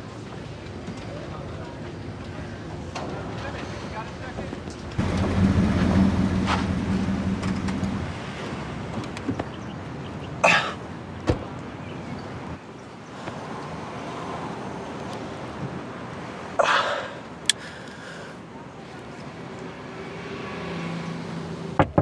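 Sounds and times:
car engine hum: 5.0 - 9.7.

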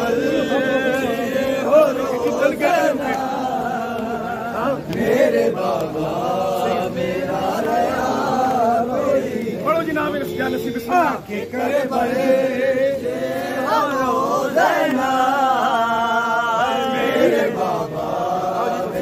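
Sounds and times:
man chanting a lament: 0.0 - 19.0.

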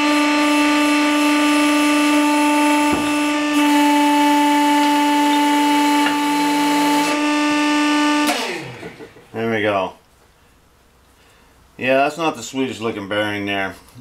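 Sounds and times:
hydraulic pump whine: 0.0 - 9.3.

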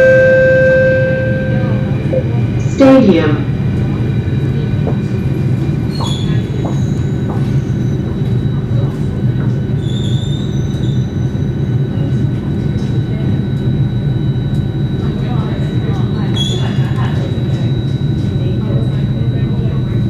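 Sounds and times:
high whine: 0.0 - 3.6.

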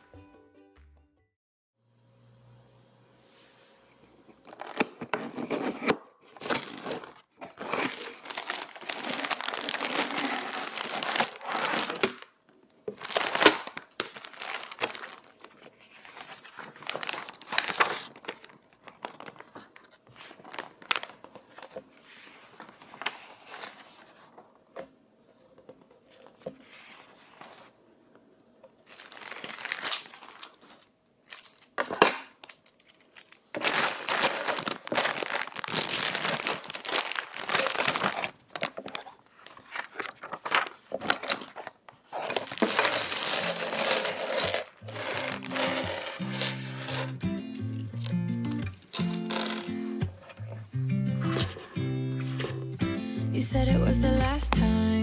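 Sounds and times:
plastic bags crinkling: 4.4 - 5.1, 6.3 - 21.7, 28.8 - 50.5.

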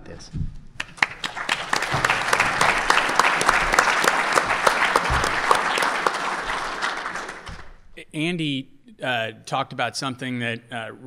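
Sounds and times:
audience applauding: 0.8 - 7.8.

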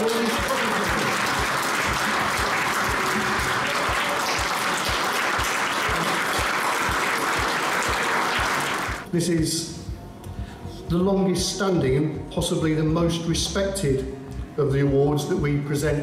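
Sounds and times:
large audience applauding: 0.0 - 9.1
low music beat: 0.0 - 16.0.

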